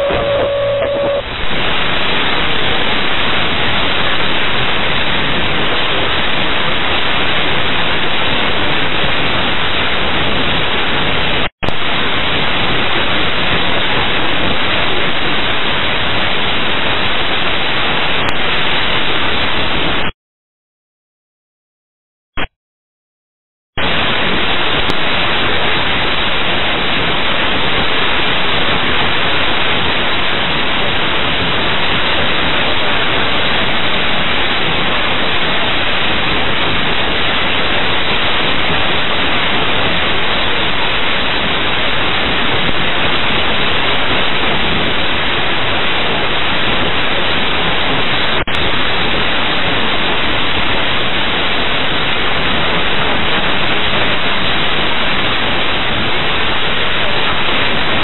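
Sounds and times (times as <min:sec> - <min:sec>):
radio static hiss: 0:00.0 - 0:03.0.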